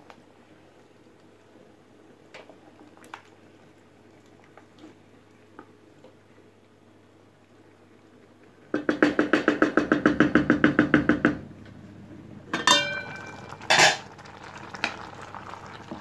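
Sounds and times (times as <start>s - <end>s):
ringing metallic clank: 12.6s - 13.4s.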